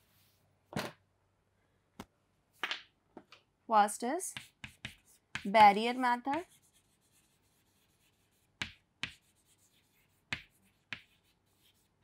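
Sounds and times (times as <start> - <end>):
chalk tapping on chalkboard: 4.3 - 11.9
chalk scratching: 4.3 - 12.0.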